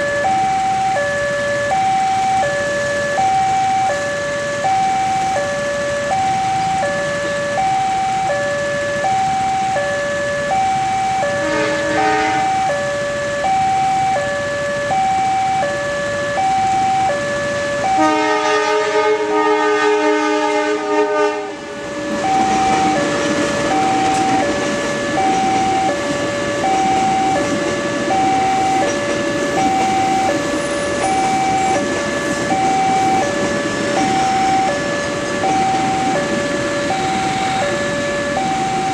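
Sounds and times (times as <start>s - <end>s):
level crossing alarm two-tone: 0.0s - 21.3s, 21.9s - 38.9s
train rumbling over crossing: 0.0s - 38.9s
train horn chord: 11.4s - 12.7s, 18.0s - 21.7s.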